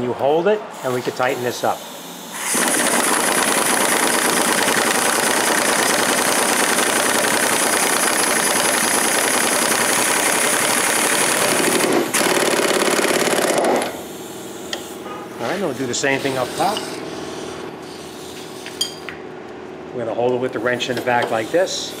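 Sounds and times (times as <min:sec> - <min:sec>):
pneumatic impact wrench hammering: 0:02.3 - 0:15.0.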